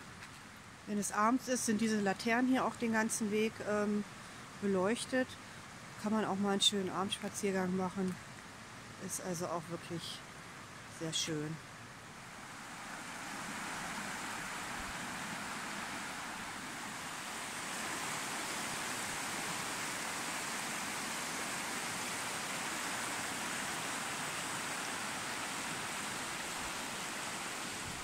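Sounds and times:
river rushing over rocks: 0:12.2 - 0:28.0.

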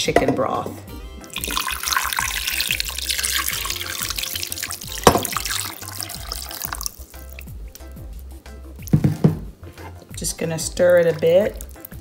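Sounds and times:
background music: 0:00.0 - 0:12.0
broth pouring and splashing: 0:01.3 - 0:07.5.

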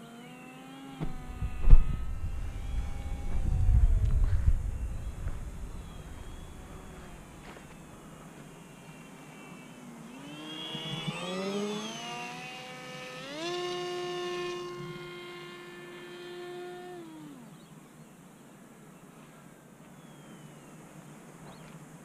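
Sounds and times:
model plane motor whining: 0:00.0 - 0:17.7.

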